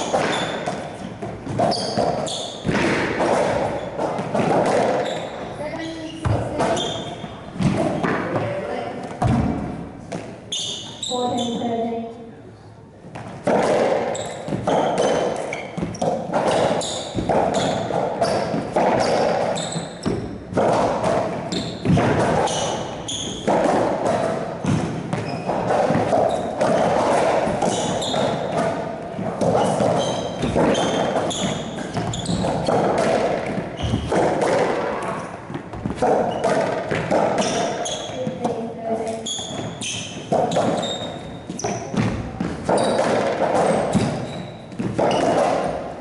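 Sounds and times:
racquetball impacts echoing: 0:00.0 - 0:12.2, 0:13.0 - 0:46.0.

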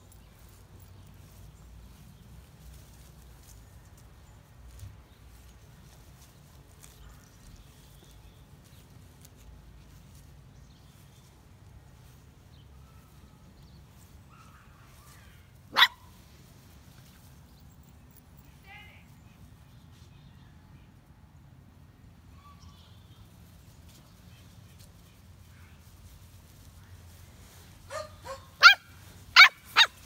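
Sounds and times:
faint outdoor background: 0:00.0 - 0:30.0
puppy barking: 0:15.7 - 0:16.1, 0:27.9 - 0:30.0.

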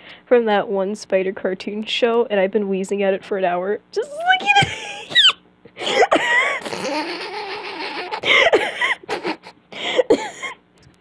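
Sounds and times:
person laughing hard: 0:04.4 - 0:10.5.

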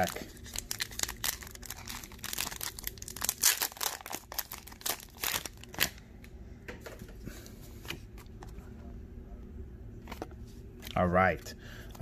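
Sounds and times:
foil wrapper crinkling: 0:00.0 - 0:06.0.

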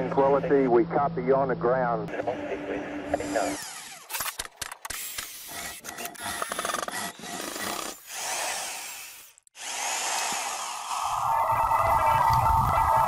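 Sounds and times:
circular saw cutting panel: 0:03.2 - 0:04.3.

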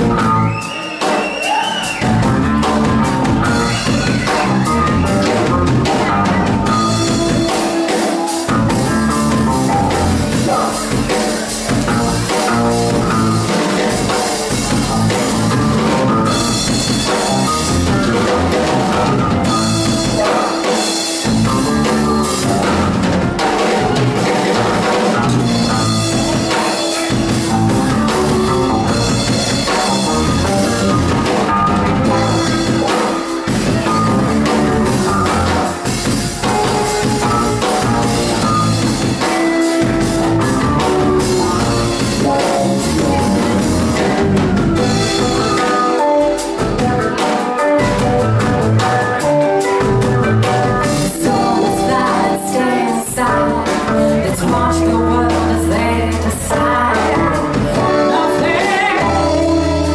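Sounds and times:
drum kit: 0:00.0 - 0:59.9
electric guitar: 0:00.0 - 0:59.9
keyboard: 0:00.0 - 0:59.9
women singing: 0:50.8 - 0:59.9.

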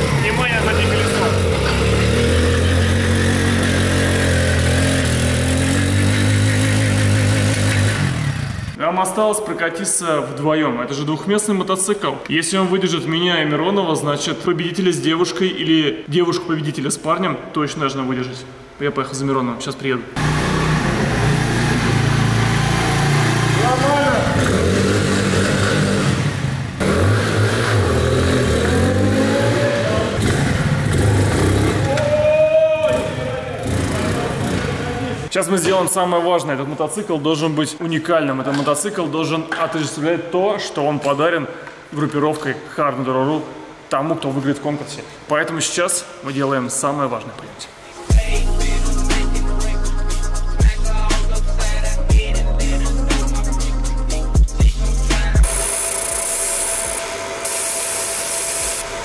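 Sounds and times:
motorcycle engine revving high: 0:00.0 - 0:08.8, 0:20.2 - 0:35.3.

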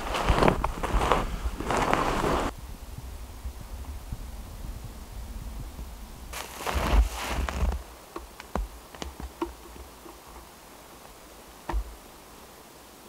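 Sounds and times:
rustling and crunching in snow: 0:00.0 - 0:12.6
dull knock: 0:11.7 - 0:11.9.

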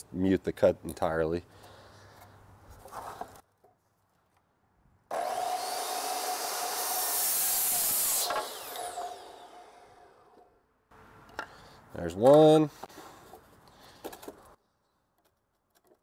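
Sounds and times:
miter saw cutting wood: 0:05.1 - 0:10.6.

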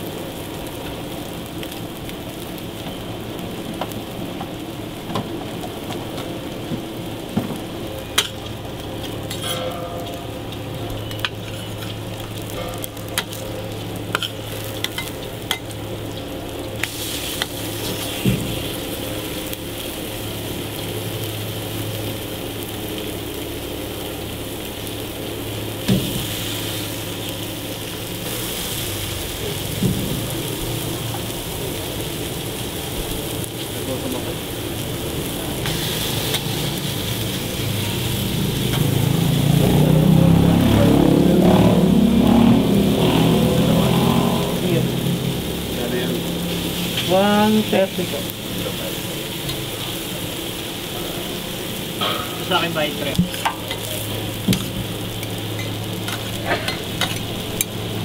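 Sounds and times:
food sizzling on griddle: 0:00.0 - 0:58.0
metal spatula scraping griddle: 0:09.3 - 0:10.2.

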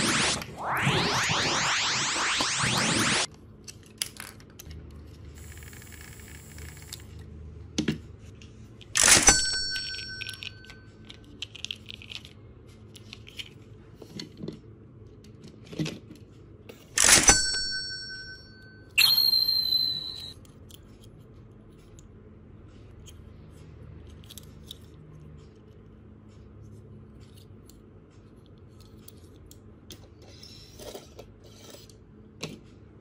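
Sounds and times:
sharp ringing clanks: 0:09.0 - 0:10.8.

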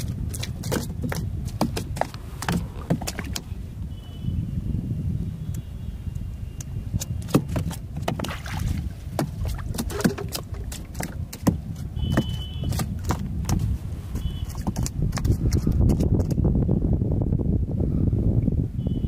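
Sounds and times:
water sloshing and splashing: 0:00.0 - 0:03.6, 0:06.9 - 0:16.3.

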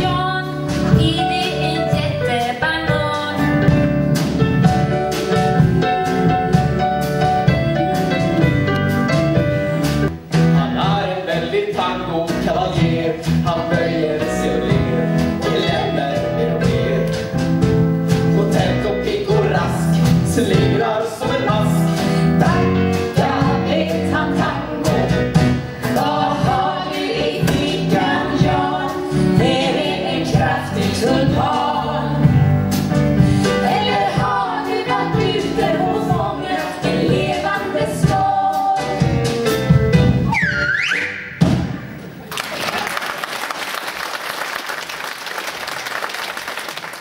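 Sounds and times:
instrumental accompaniment with beat: 0:00.0 - 0:42.3
voices singing together: 0:10.6 - 0:17.2, 0:18.1 - 0:32.6, 0:33.3 - 0:39.3.

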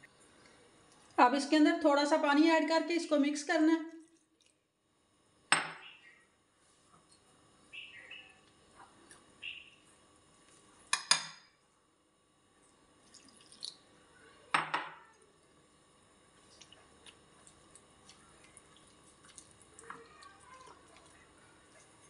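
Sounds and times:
spoon knocking against bowl: 0:10.9 - 0:11.4, 0:14.5 - 0:15.0.

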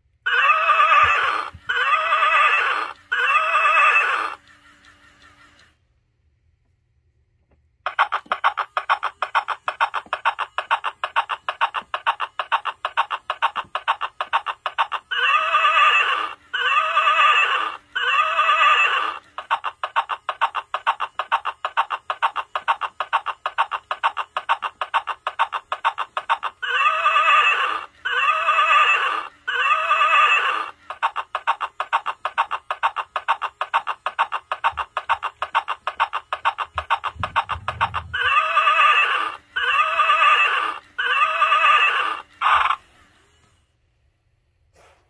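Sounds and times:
recorded galloping hoofbeats: 0:00.0 - 0:05.7, 0:07.8 - 0:42.9
horse whinnies: 0:00.2 - 0:04.4, 0:15.0 - 0:19.2, 0:26.4 - 0:30.8, 0:36.8 - 0:42.8.

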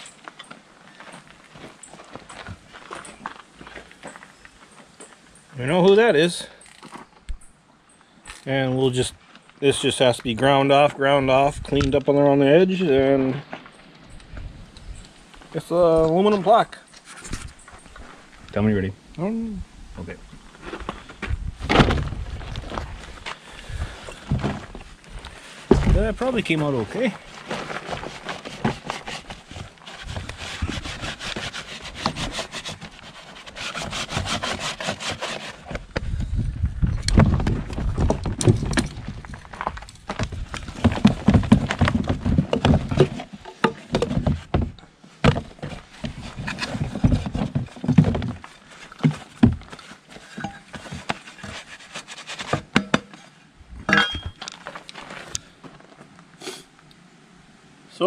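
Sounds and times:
gloved hands scraping sand off metal: 0:25.4 - 0:35.8, 0:45.6 - 0:52.8
sand crumbling into plastic tub: 0:25.6 - 0:30.9
wood and metal knocks: 0:25.7 - 0:26.2, 0:40.1 - 0:49.8, 0:52.4 - 0:53.2.

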